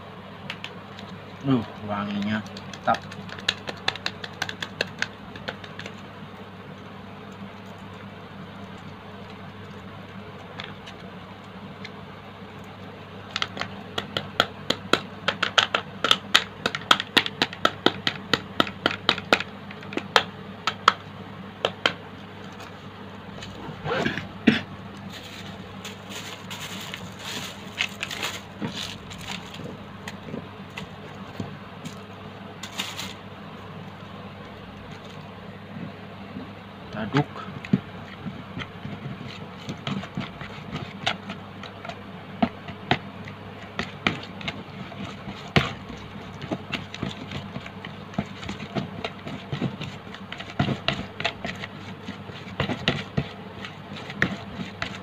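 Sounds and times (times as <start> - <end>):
steady low hum: 0.0 - 55.0
plastic sachet crinkling: 25.0 - 29.8, 32.6 - 33.2.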